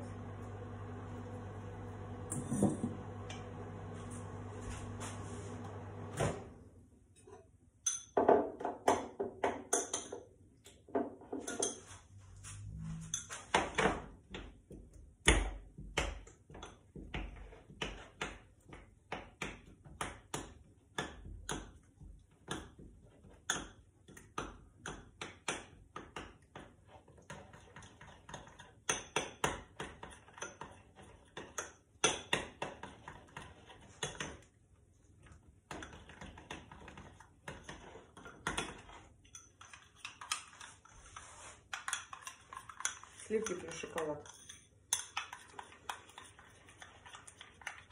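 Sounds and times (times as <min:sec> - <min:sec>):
teaspoon clinking against glass bowl: 0:07.8 - 0:08.2.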